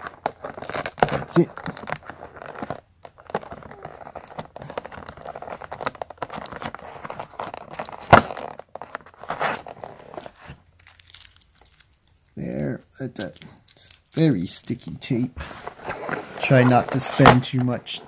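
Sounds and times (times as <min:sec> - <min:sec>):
plastic crinkling: 0:00.0 - 0:18.0.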